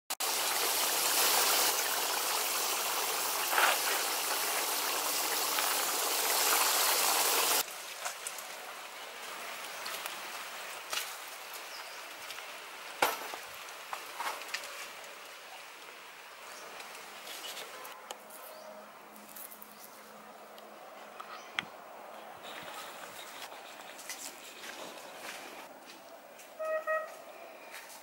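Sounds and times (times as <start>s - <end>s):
meat sizzling in oil: 0.2s - 7.6s.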